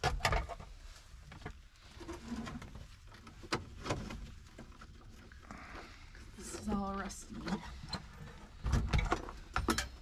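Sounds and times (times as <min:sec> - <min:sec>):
clicks and knocks of hand tools: 0:08.8 - 0:10.0.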